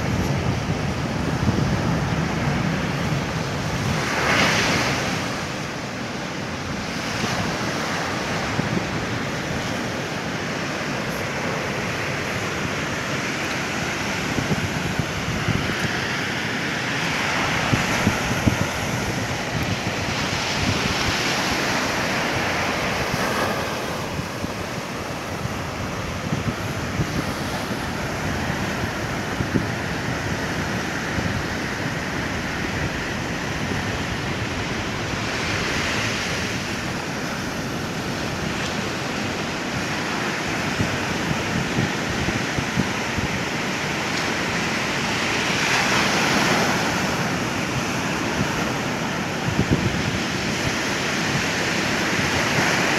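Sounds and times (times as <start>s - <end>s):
ocean surf breaking: 0.0s - 52.9s
wind rumbling on microphone: 0.0s - 52.9s.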